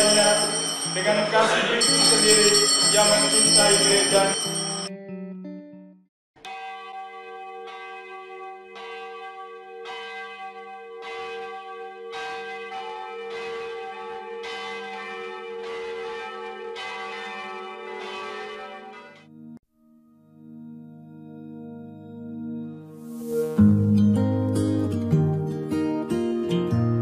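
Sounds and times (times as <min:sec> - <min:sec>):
church bell tolling: 0:00.0 - 0:04.9, 0:06.5 - 0:19.4.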